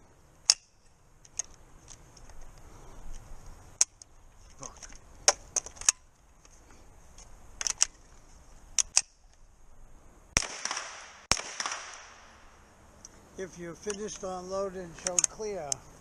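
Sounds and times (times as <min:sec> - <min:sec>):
carbine reloading clicks: 0:07.5 - 0:08.0, 0:08.7 - 0:09.4, 0:13.8 - 0:15.8
gunshots with echo: 0:10.4 - 0:12.2.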